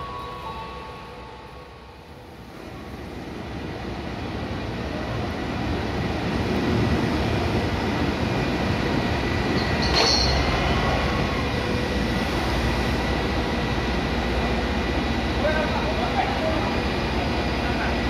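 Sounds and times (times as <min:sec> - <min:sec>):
diesel locomotive rumbling: 0:00.0 - 0:18.0
sharp metallic clank: 0:09.6 - 0:10.6.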